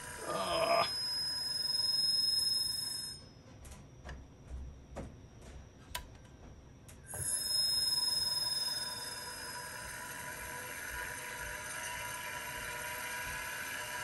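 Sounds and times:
hard drive spindle whine: 0.0 - 3.2, 7.1 - 14.0.

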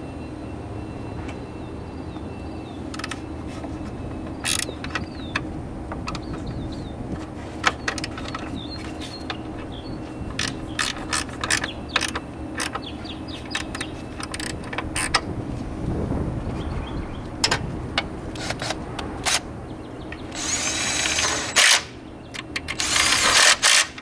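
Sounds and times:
steady background hum: 0.0 - 24.0
hand ratchet clicking: 4.4 - 5.2, 10.4 - 12.9, 20.3 - 24.0.

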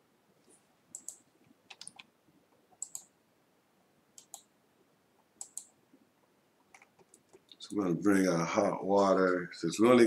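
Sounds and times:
faint computer mouse clicks: 0.9 - 2.1, 2.8 - 3.1, 4.2 - 4.5, 5.4 - 5.8.

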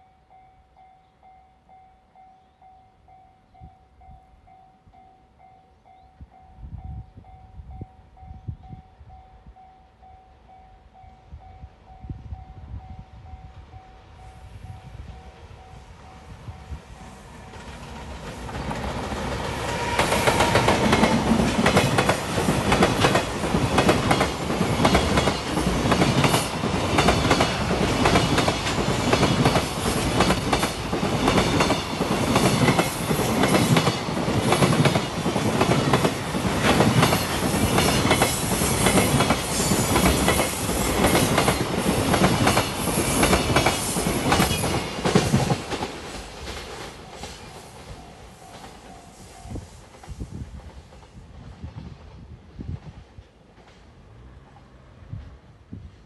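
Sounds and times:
freight train passing: 0.0 - 56.0
wheels clacking over rail joints: 17.3 - 49.0.

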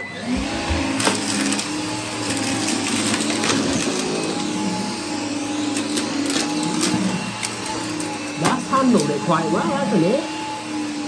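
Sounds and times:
vacuum cleaner running: 0.0 - 11.0
debris rattling through vacuum: 0.3 - 4.3.

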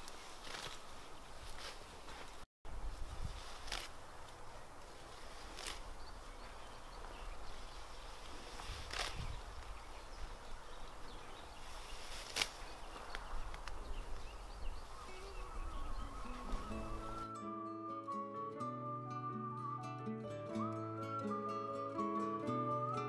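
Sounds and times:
sickle cutting stalks: 0.0 - 2.4, 3.2 - 7.1, 8.0 - 9.8, 11.6 - 14.2
plants rustling: 0.0 - 17.3
low wind rumble: 2.7 - 17.3
faint bird chirps: 5.8 - 17.3.

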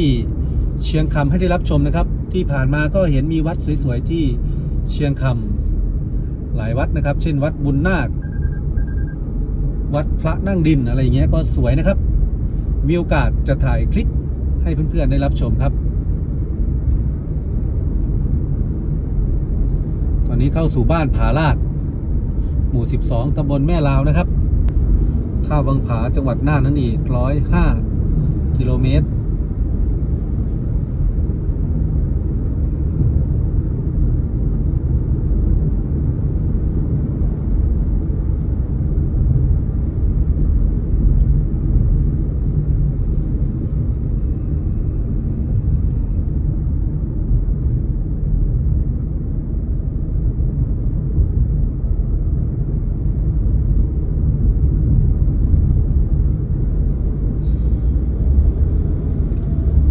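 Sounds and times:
car tyre and engine rumble: 0.0 - 59.9.

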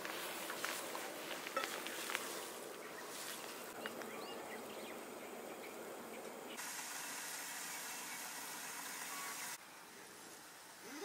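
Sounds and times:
steady hiss: 5.9 - 11.0.

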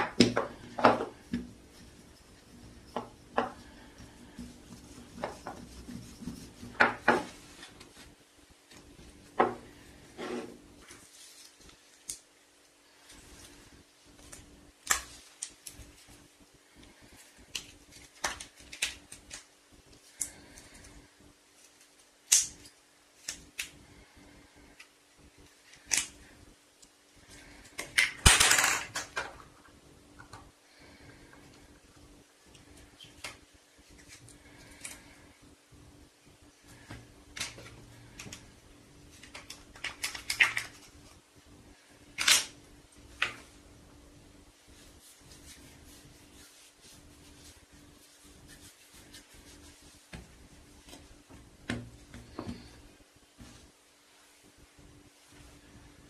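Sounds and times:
crackle: 10.8 - 28.4, 39.0 - 43.4
modelling clay squishing: 29.3 - 56.0.

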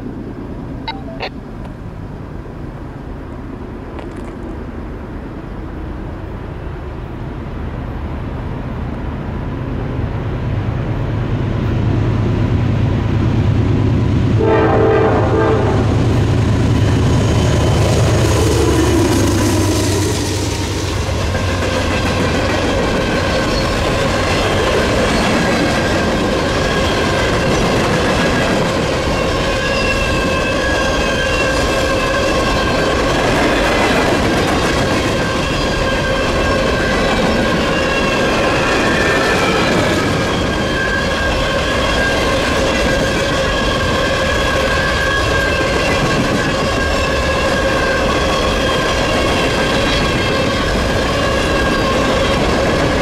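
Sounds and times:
train wheels rumbling on rail: 1.6 - 53.0
high-pitched wheel squeal: 29.0 - 33.1, 34.8 - 53.0.

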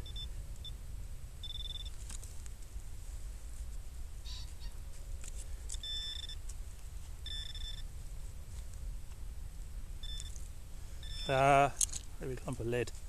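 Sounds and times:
metal detector beeping: 0.0 - 0.8, 1.4 - 2.0, 4.2 - 4.7, 5.7 - 6.5, 7.2 - 7.9, 10.0 - 12.0.

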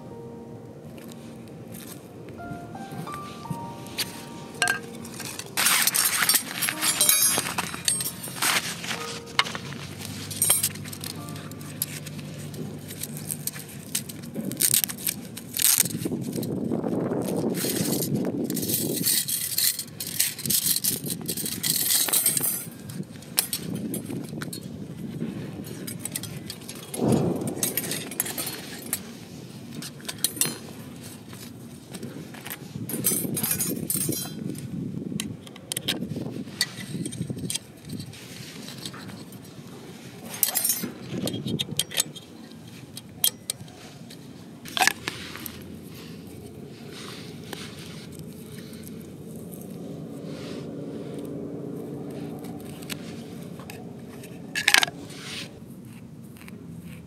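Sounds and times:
metal grill parts clinking: 4.6 - 14.9, 17.6 - 24.7, 25.7 - 29.2, 32.9 - 34.4, 40.2 - 45.6.

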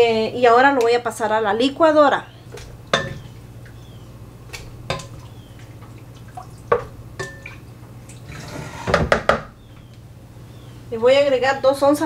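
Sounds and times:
wet drips and plops: 2.5 - 8.3
liquid pouring: 4.6 - 8.8
knocks: 8.9 - 9.5.

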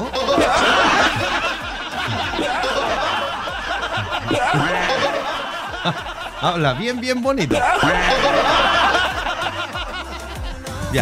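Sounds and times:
background music: 0.0 - 11.0
people laughing: 0.0 - 11.0.

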